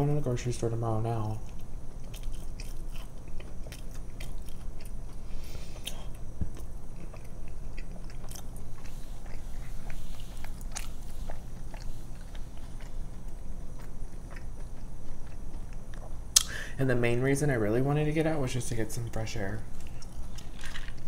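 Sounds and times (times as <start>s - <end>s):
chewing with crunches: 1.1s - 16.5s, 19.0s - 21.0s.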